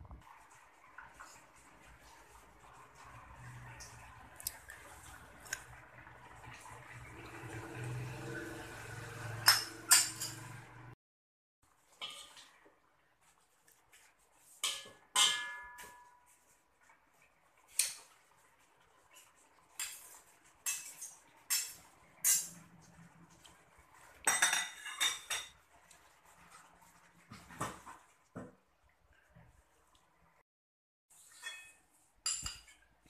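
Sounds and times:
metal spatula clanking in a wok: 0:14.6 - 0:16.1.

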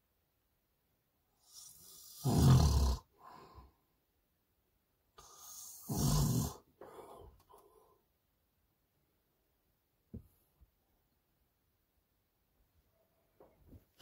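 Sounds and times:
man snoring: 0:01.4 - 0:03.2, 0:05.2 - 0:06.7.

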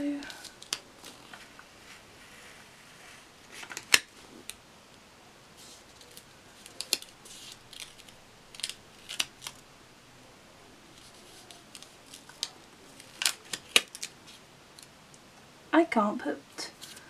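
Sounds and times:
paper crinkling and rustling: 0:00.2 - 0:04.5, 0:05.6 - 0:09.6, 0:10.9 - 0:14.9, 0:16.7 - 0:17.0.

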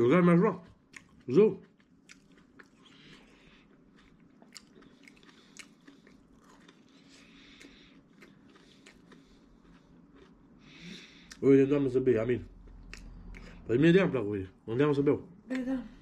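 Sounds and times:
person chewing: 0:00.5 - 0:11.4, 0:12.3 - 0:13.7
small mouth clicks: 0:12.7 - 0:13.6.

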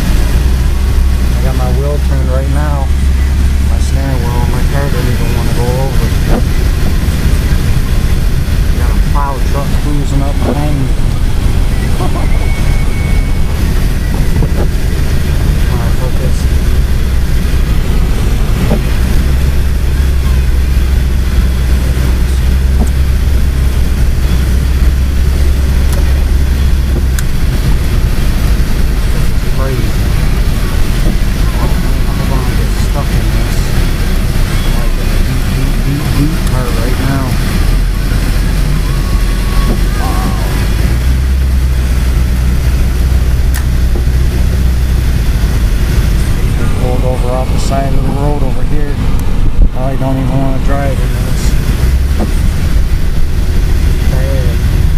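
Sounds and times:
car engine and road rumble: 0:00.0 - 0:54.9.

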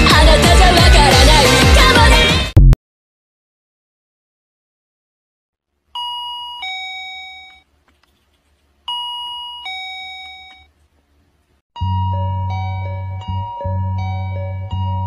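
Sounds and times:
two-note doorbell chime: 0:06.0 - 0:07.6, 0:08.9 - 0:10.7, 0:11.8 - 0:15.0.

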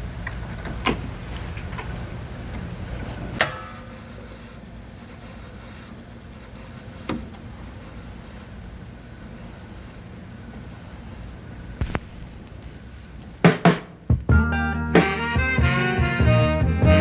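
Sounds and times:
record player mechanical clack: 0:00.0 - 0:09.6, 0:11.8 - 0:14.3
steady low hum: 0:00.0 - 0:16.9.

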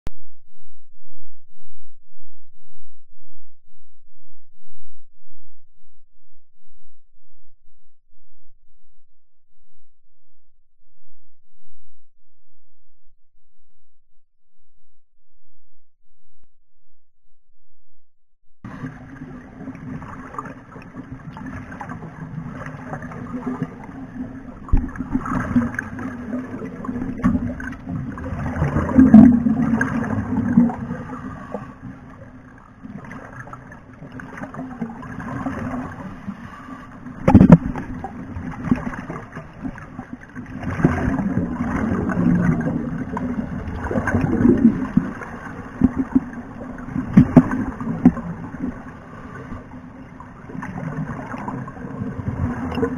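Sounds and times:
steady low hum: 0:00.1 - 0:52.9
underwater gurgling and bubbling: 0:18.7 - 0:52.9.

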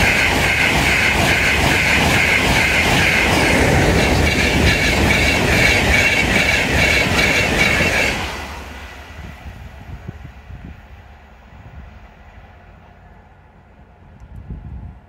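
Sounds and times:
wheels clattering on rails: 0:00.0 - 0:08.6
train passing at speed: 0:00.0 - 0:15.0.

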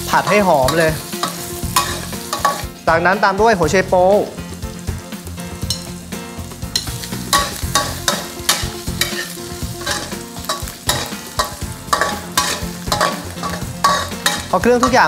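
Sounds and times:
metal spatula scraping a wok: 0:00.0 - 0:02.8, 0:06.7 - 0:15.0
food sizzling in hot oil: 0:00.0 - 0:15.0.

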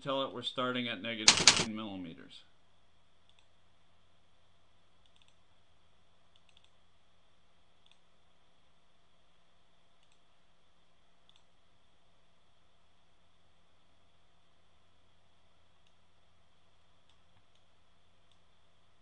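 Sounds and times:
faint low hum: 0:00.0 - 0:19.0
computer mouse clicks: 0:03.2 - 0:03.5, 0:05.0 - 0:05.4, 0:06.3 - 0:06.8, 0:07.8 - 0:08.1, 0:10.0 - 0:10.3, 0:11.2 - 0:11.5, 0:17.0 - 0:18.5.

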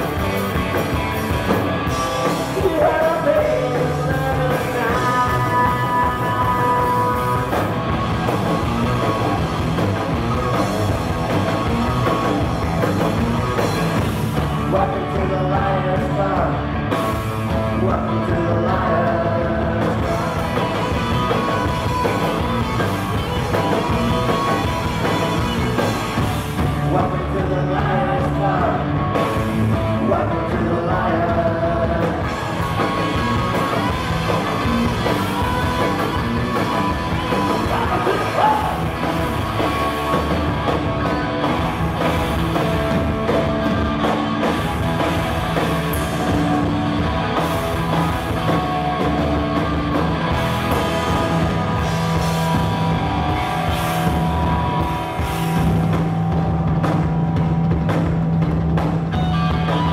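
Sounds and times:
live punk rock band: 0:00.0 - 0:59.9
person singing: 0:02.4 - 0:07.7, 0:14.5 - 0:16.7, 0:17.5 - 0:21.3, 0:26.7 - 0:32.7, 0:37.3 - 0:39.3.

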